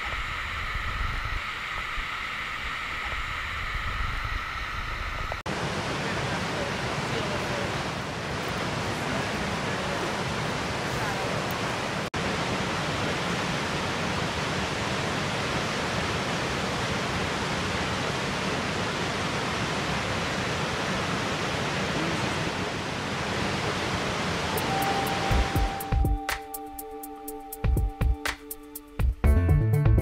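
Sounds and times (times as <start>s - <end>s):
waterfall rushing: 5.5s - 26.0s.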